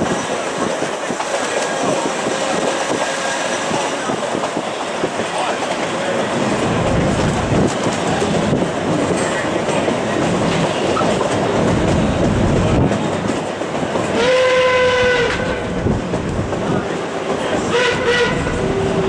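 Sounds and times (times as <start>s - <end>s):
steam train wheel and rail noise: 0.0s - 19.0s
steam whistle blast: 14.2s - 15.5s, 17.7s - 18.6s.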